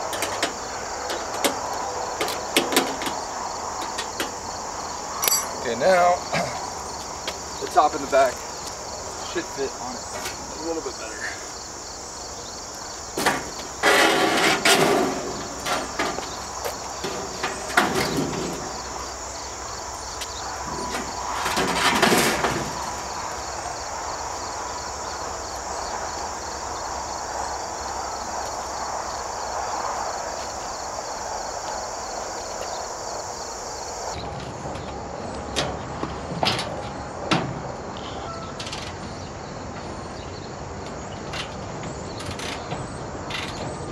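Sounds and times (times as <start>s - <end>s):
sheet metal clattering and scraping: 0.0s - 4.4s, 13.1s - 19.6s, 20.6s - 23.6s
crickets chirping: 0.0s - 43.9s.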